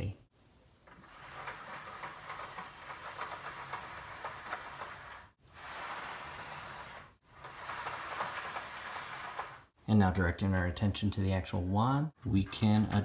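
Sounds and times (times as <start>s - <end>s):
blind slats rattling: 0.8s - 9.8s.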